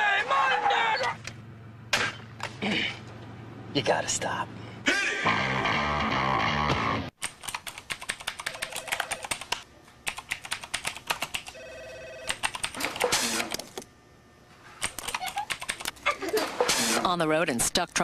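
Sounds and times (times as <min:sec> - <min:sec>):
typing on laptop keyboard: 0:07.2 - 0:11.6, 0:12.3 - 0:12.8, 0:14.9 - 0:16.0.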